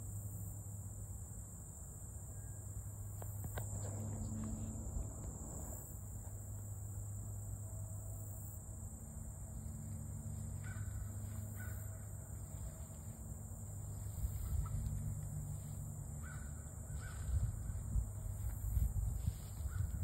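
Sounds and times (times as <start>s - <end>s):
high insect drone: 0.0s - 20.0s
low rumble: 9.3s - 20.0s.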